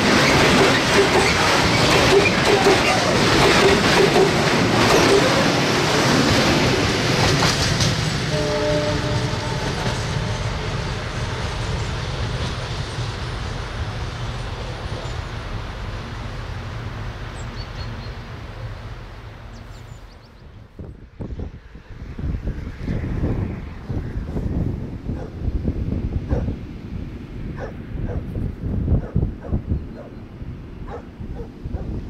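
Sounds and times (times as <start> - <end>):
freight train rumble and wheel clatter: 0.0 - 32.0
distant locomotive horn: 8.2 - 10.6.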